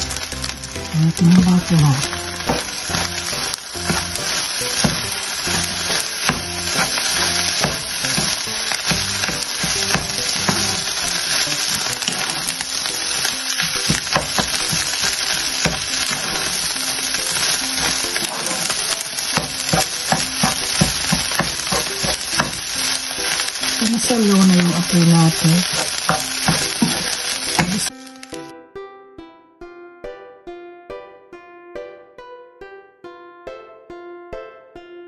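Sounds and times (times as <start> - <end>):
fried rice sizzling in a pan: 0.0 - 28.5
spatula stirring and scraping: 2.0 - 27.9.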